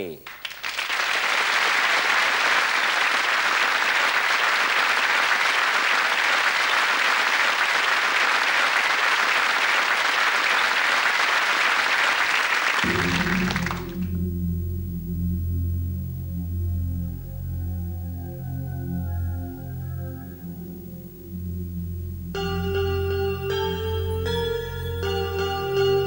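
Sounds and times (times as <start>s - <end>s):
audience applauding: 0.0s - 14.2s
low sustained music tones: 12.9s - 26.0s.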